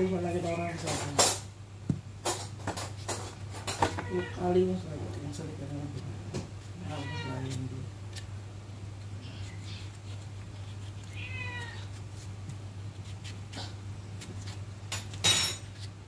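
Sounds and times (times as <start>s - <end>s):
steady low hum: 0.0s - 16.0s
pet animal crying: 3.9s - 4.5s, 6.8s - 7.5s, 10.9s - 12.0s.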